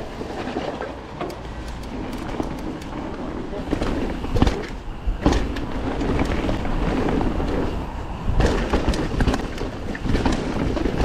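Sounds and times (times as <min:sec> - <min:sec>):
bike tyres and rattling: 0:00.0 - 0:11.0
wind rushing on microphone: 0:00.0 - 0:11.0.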